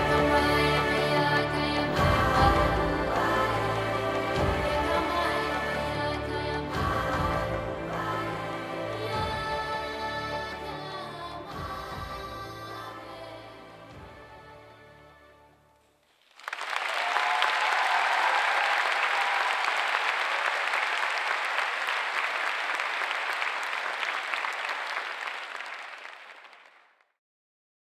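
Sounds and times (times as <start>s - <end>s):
audience applauding: 0.0s - 9.1s, 16.1s - 27.0s
orchestral music: 0.0s - 15.7s.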